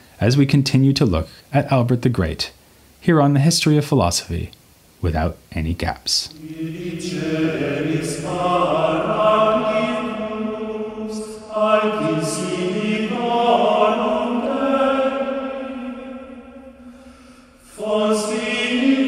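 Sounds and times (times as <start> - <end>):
choir singing a slow chant: 6.3 - 19.0.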